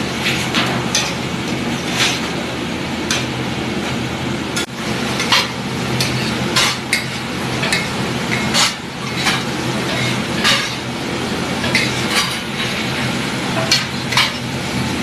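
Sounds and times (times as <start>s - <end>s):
food sizzling: 0.0s - 15.0s
low background hum: 0.0s - 15.0s
metal spatula scraping a griddle: 0.2s - 2.4s, 5.2s - 14.5s.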